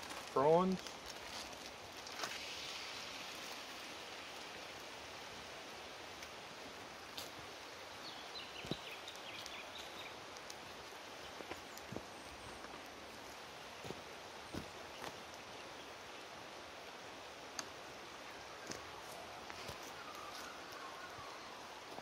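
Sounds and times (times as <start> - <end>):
prawns sizzling in hot oil: 0.4 - 5.1.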